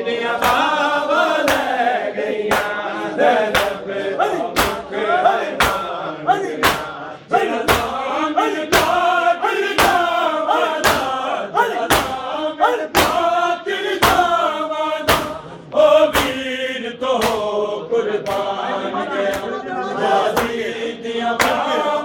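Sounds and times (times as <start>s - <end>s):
men chanting together: 0.0s - 22.0s
chest-beating slaps: 0.4s - 0.8s, 1.4s - 1.8s, 2.5s - 2.8s, 3.5s - 7.0s, 7.6s - 8.0s, 8.7s - 9.1s, 9.7s - 13.3s, 14.0s - 14.4s, 15.0s - 16.5s, 17.2s - 17.6s, 18.2s - 18.6s, 20.3s - 20.6s, 21.4s - 21.7s.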